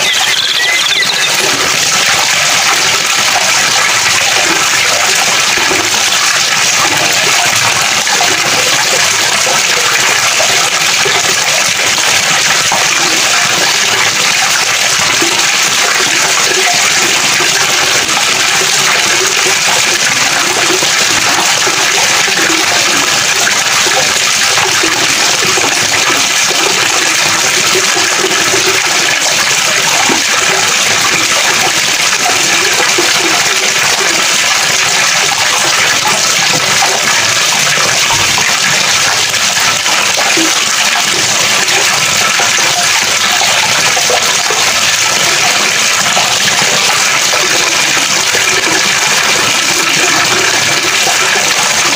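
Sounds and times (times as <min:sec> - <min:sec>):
water rushing: 0:00.0 - 0:51.9.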